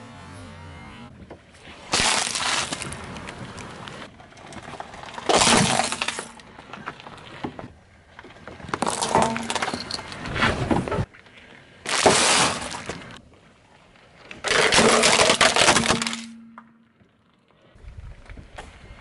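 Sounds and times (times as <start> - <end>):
objects crunching under car tyre: 1.2 - 17.4
glass-like breaking: 1.9 - 3.0, 5.3 - 6.4, 8.8 - 10.1, 14.6 - 16.8.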